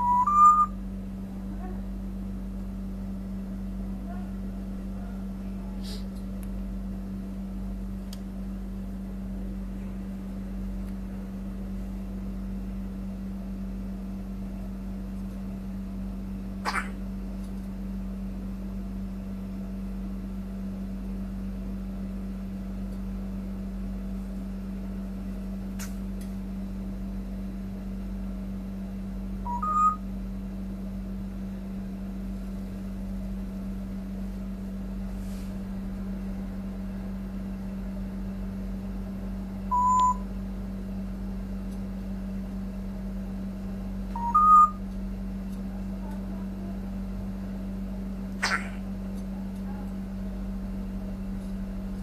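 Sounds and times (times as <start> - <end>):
parrot whistling: 0.0 - 0.8, 29.5 - 30.0, 44.2 - 44.8
steady low hum: 0.0 - 52.0.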